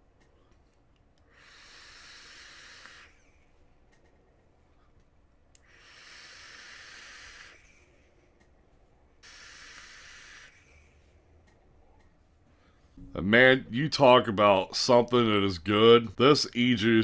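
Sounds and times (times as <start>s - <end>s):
breathy vaping hiss: 1.2s - 3.5s, 5.6s - 8.2s, 9.2s - 11.2s.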